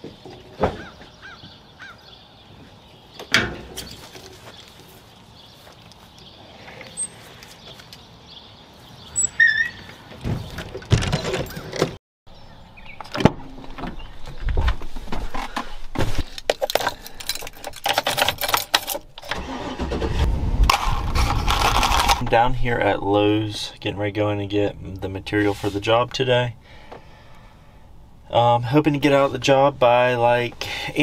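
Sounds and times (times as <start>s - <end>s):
vehicle doors opening and shutting: 3.2s - 4.1s, 9.2s - 12.0s, 17.2s - 20.8s
keys rattling in ignition: 16.5s - 19.8s
vehicle engine starting: 19.2s - 22.2s.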